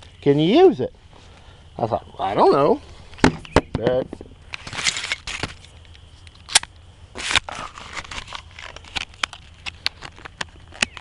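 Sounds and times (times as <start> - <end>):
rustling scrape: 4.5 - 6.2, 7.2 - 10.2.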